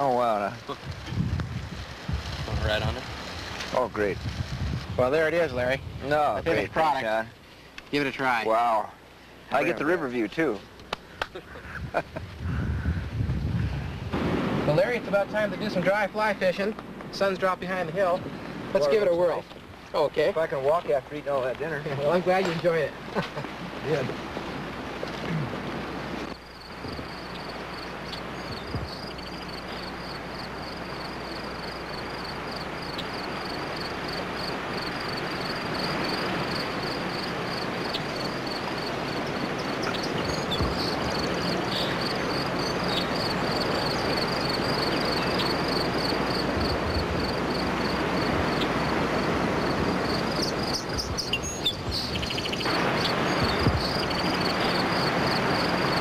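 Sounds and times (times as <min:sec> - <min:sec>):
rushing river current: 0:21.8 - 0:56.0
fast-pulsing insect chirp: 0:26.4 - 0:56.0.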